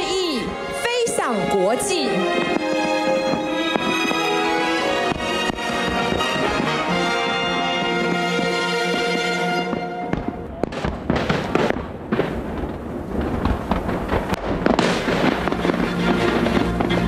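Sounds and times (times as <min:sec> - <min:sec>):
music: 0:00.0 - 0:10.4, 0:15.0 - 0:17.0
fireworks bangs and crackling: 0:00.0 - 0:17.0.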